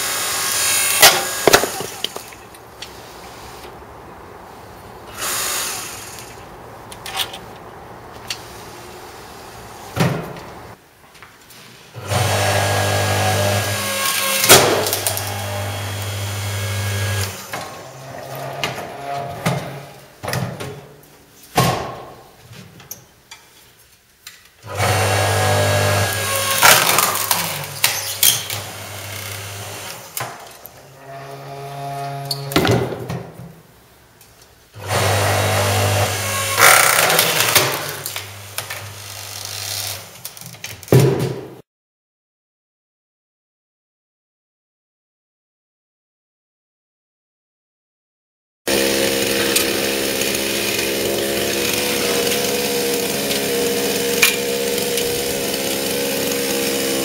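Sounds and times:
wood splitting cracks: 26.1s - 28.6s, 36.6s - 38.8s, 48.7s - 57.0s
log splitter motor humming: 48.7s - 57.0s.

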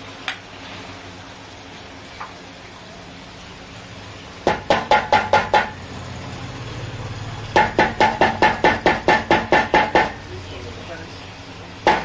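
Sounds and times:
rapid metal tapping on metal: 7.6s - 10.2s.

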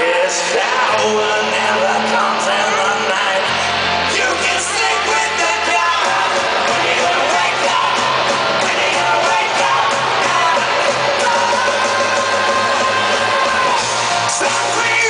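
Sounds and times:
bass guitar: 0.0s - 15.0s
drums: 0.0s - 15.0s
electric guitar: 0.0s - 15.0s
person singing: 0.0s - 15.0s.

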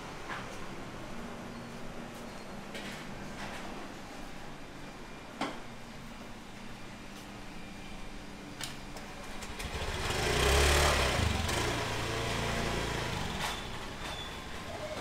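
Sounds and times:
motor scooter passing by: 9.4s - 15.0s.

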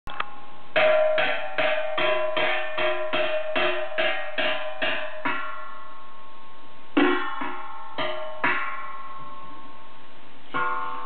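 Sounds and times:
metal pot drummed by hand: 0.8s - 5.7s, 7.0s - 9.1s.

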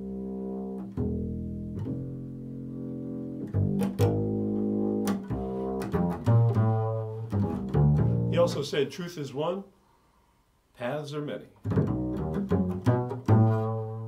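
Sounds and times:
double bass plucked notes: 0.0s - 8.7s, 11.6s - 14.0s.

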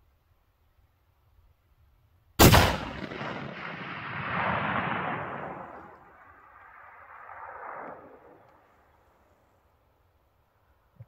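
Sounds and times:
rifle shot crack: 2.4s - 8.9s.

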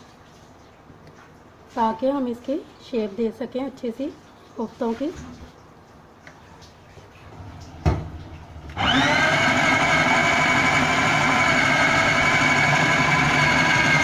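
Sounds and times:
food processor motor whining: 8.7s - 14.0s.

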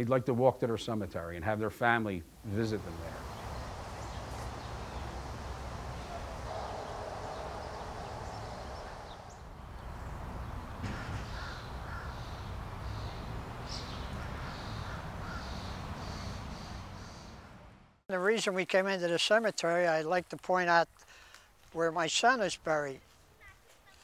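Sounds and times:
street traffic rumble: 2.4s - 18.0s
birds calling: 2.5s - 17.7s.

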